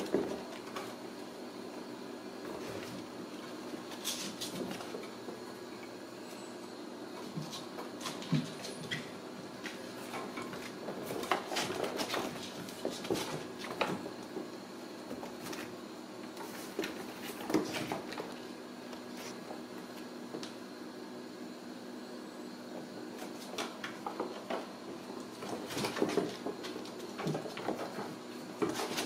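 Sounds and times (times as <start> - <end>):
kittens playing clicks and scrapes: 0.0 - 20.6, 23.1 - 29.0
faint hum: 0.0 - 29.0.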